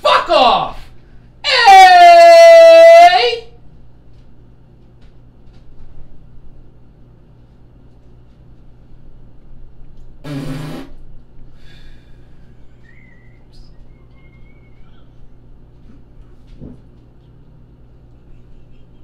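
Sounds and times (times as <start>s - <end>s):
steady low hum: 0.0s - 1.7s, 2.7s - 19.0s
loud buzzing burst of noise: 10.2s - 11.0s
faint thin whistle-like tone: 12.7s - 15.2s.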